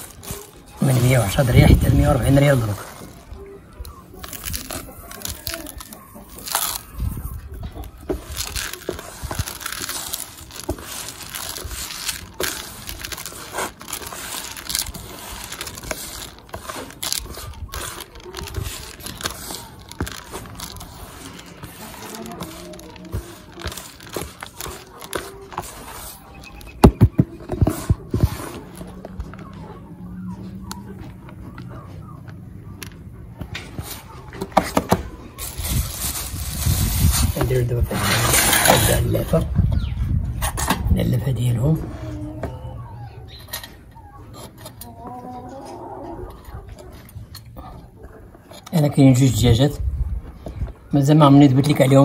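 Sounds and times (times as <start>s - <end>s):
hands crunching damp feed: 0.0s - 39.4s.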